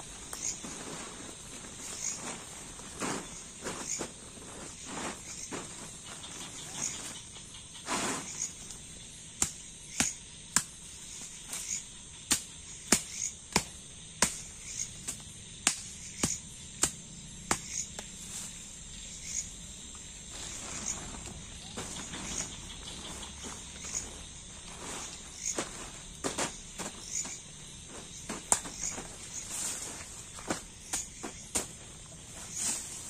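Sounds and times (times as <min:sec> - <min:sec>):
night insects chirring: 0:00.0 - 0:33.0.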